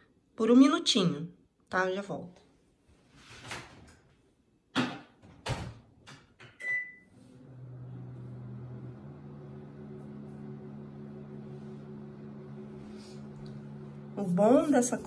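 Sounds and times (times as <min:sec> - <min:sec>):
keypad beep: 0:06.6 - 0:07.0
microwave oven humming: 0:06.6 - 0:15.0.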